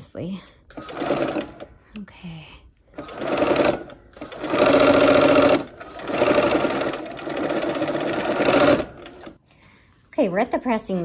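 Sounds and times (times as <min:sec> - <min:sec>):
sewing machine stitching: 0:00.7 - 0:01.7, 0:02.9 - 0:09.4.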